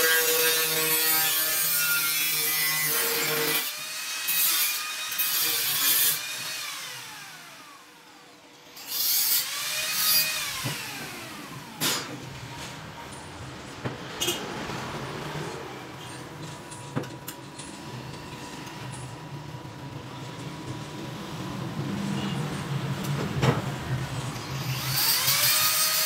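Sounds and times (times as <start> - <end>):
angle grinder grinding metal: 0.0 - 7.4, 8.8 - 12.3, 24.2 - 26.0.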